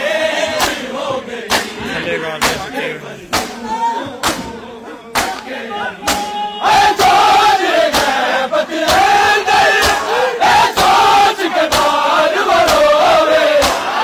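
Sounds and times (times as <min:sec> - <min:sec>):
men chanting in unison: 0:00.0 - 0:14.0
hands striking chests: 0:03.3 - 0:03.6, 0:05.1 - 0:06.3.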